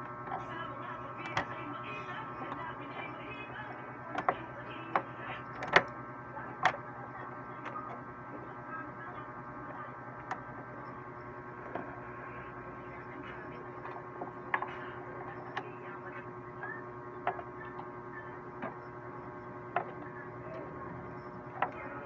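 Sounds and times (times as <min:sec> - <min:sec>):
steady electrical hum: 0:00.0 - 0:22.0
computer parts clicking and knocking: 0:04.1 - 0:06.0.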